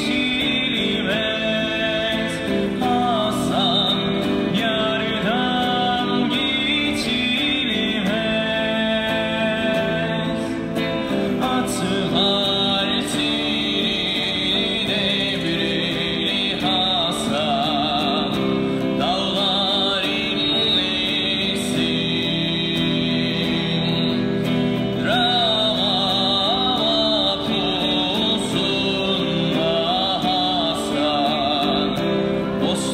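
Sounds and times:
electric guitar: 0:00.0 - 0:32.9
man singing into a microphone: 0:00.0 - 0:32.9.

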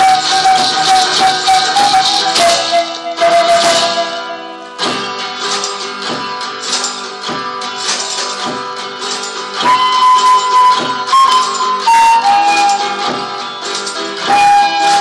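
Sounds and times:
strummed guitar: 0:00.0 - 0:15.0
steady drum beat: 0:04.8 - 0:11.1.

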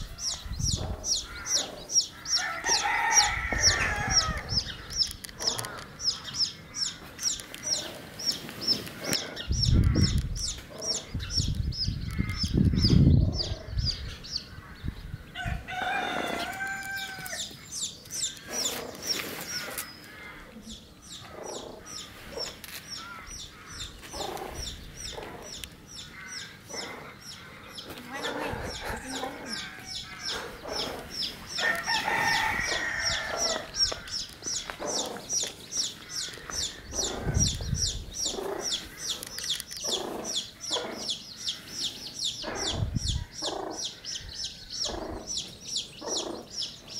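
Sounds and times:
rooster crowing: 0:02.4 - 0:04.6, 0:15.4 - 0:17.5, 0:31.6 - 0:33.7
hens clucking: 0:15.4 - 0:46.8.

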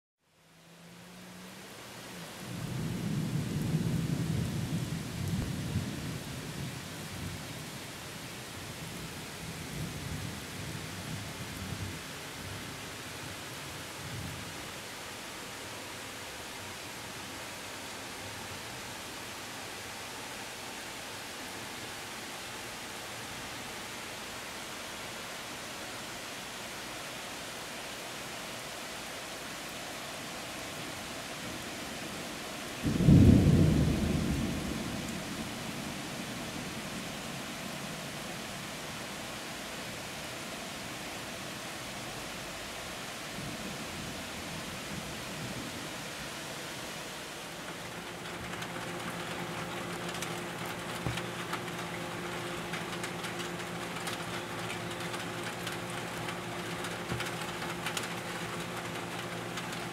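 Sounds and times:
steady rain hissing: 0:00.2 - 0:59.9
thunder rumbling: 0:32.8 - 0:36.9, 0:47.7 - 0:59.9.

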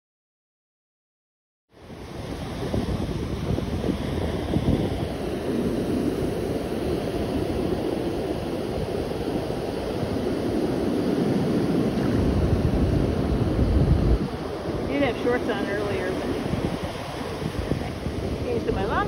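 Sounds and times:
ocean surf: 0:01.7 - 0:19.0
wave washing up sand: 0:01.7 - 0:19.0
wind noise on microphone: 0:01.7 - 0:19.0.

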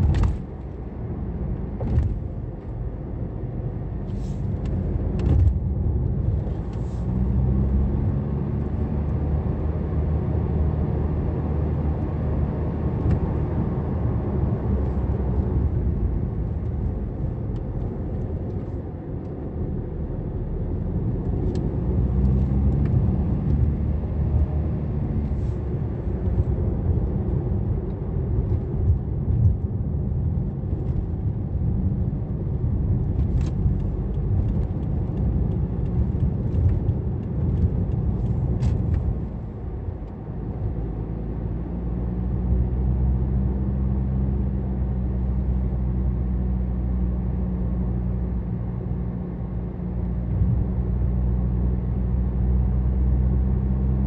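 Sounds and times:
tyre and road rumble: 0:00.0 - 0:08.5, 0:12.7 - 0:41.1
car engine running: 0:13.6 - 0:41.0.

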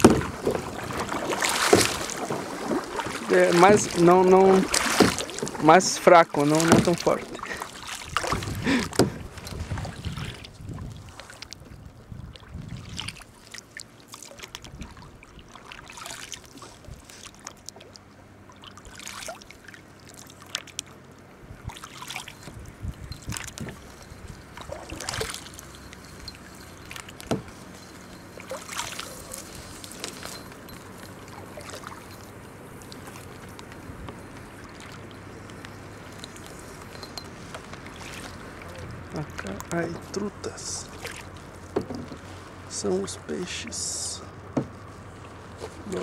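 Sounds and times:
water dripping off paddle: 0:00.0 - 0:05.7
paddle dipping and splashing: 0:00.0 - 0:46.0.

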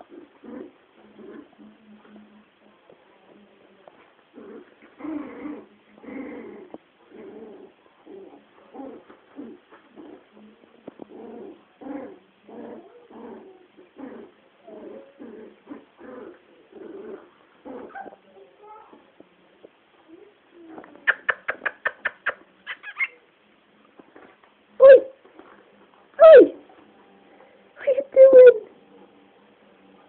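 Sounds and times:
puppies growling and yapping: 0:00.0 - 0:03.0, 0:04.3 - 0:18.3, 0:20.6 - 0:23.3.

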